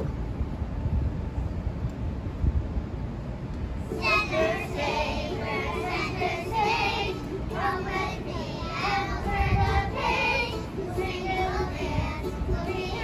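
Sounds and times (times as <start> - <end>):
young children singing: 3.9 - 13.0.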